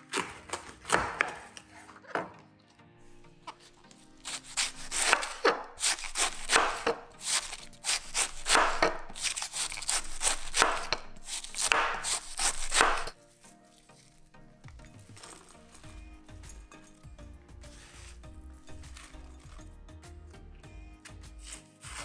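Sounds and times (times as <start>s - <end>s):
knife slicing cabbage on a board: 0.0s - 2.2s, 3.5s - 14.2s, 17.6s - 19.3s, 21.0s - 22.0s.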